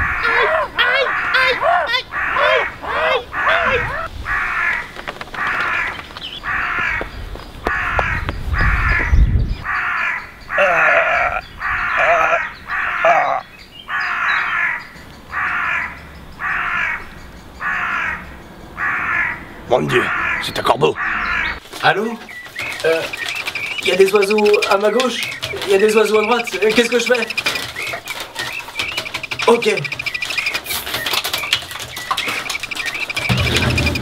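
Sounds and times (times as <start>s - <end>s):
crow cawing: 0.0s - 21.6s.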